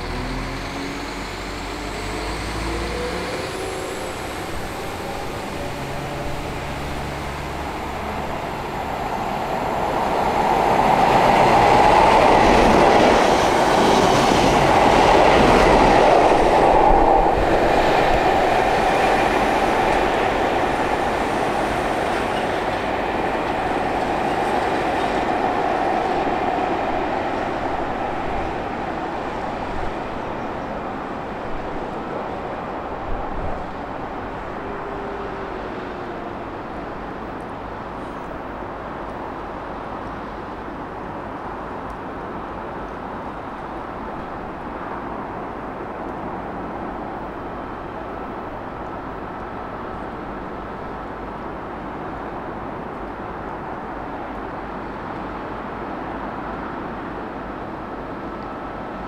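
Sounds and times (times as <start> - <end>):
diesel train engine humming: 0.0 - 41.7
train wheels rushing on rail: 0.0 - 59.0.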